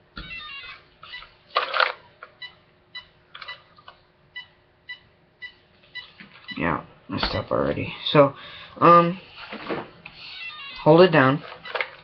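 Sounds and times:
person speaking: 10.6 - 11.5.

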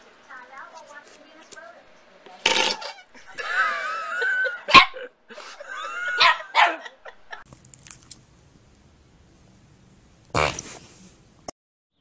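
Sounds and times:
small dog barking and yipping: 4.7 - 5.0, 6.1 - 6.9.

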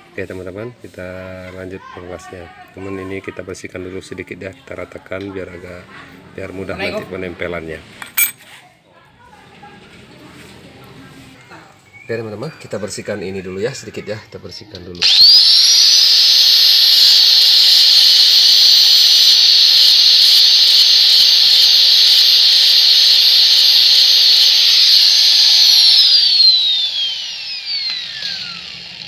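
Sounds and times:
angle grinder grinding metal: 14.7 - 29.0.

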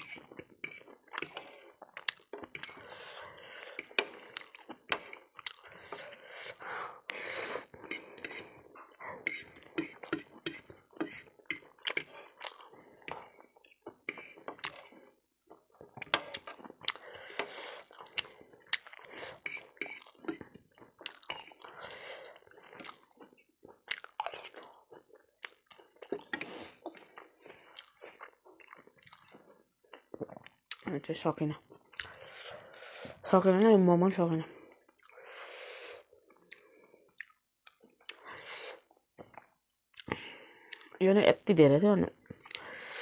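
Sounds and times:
close-up chewing: 0.0 - 30.9.

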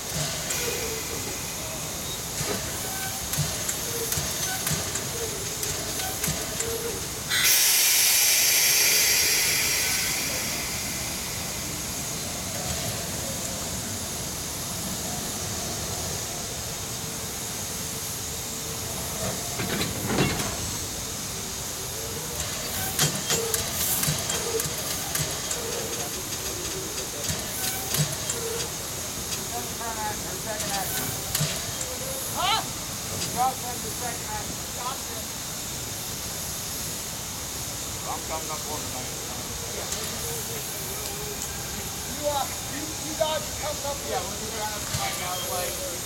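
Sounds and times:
locomotive steam hissing: 0.0 - 46.0
metal clanks and knocks: 19.6 - 20.8.

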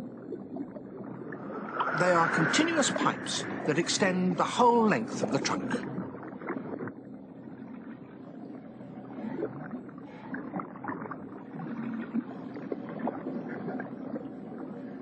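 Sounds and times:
water sloshing and gurgling: 0.0 - 15.0
water splashing: 0.4 - 6.7.

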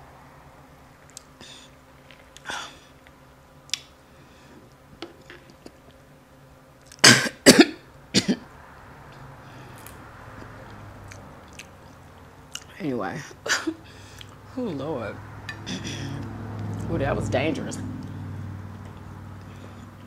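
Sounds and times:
woman coughing: 7.0 - 8.4, 13.5 - 13.8.

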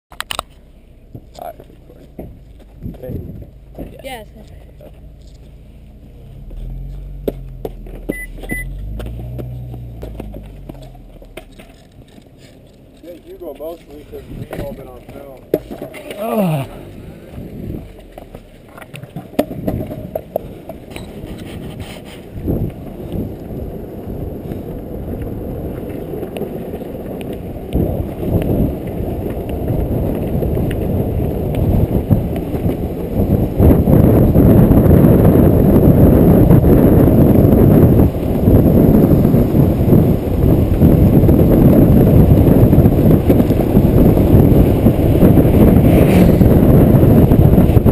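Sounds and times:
light clicks from road cracks: 0.1 - 0.6, 8.8 - 16.2, 17.9 - 23.6, 24.4 - 32.8
wheels rolling over rough asphalt: 0.1 - 47.9
wind rumble on microphone: 0.2 - 47.9
footsteps and handling knocks: 6.5 - 16.2
short electronic beeps: 8.1 - 8.8.

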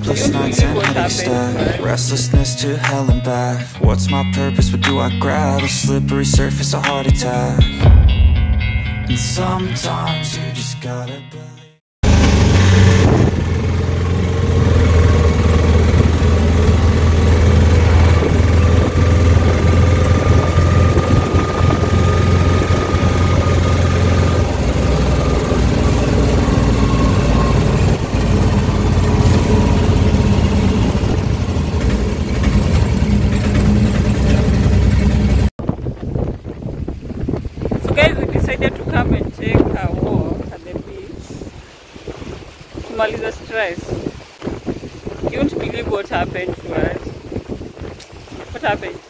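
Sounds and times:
road noise: 0.0 - 2.9, 12.0 - 49.0
auto-rickshaw engine running: 12.0 - 35.5
wind buffeting microphone: 12.5 - 34.1, 35.4 - 49.0.

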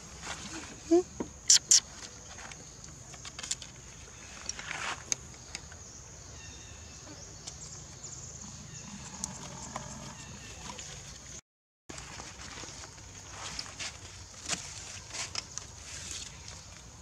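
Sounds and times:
faint short chirps: 0.9 - 1.9
small clicks and rustles: 2.0 - 3.8.

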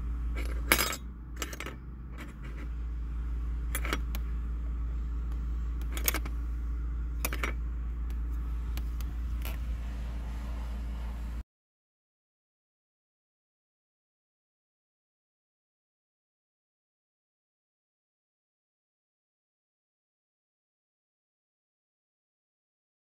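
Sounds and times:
steady low hum: 0.0 - 11.4.

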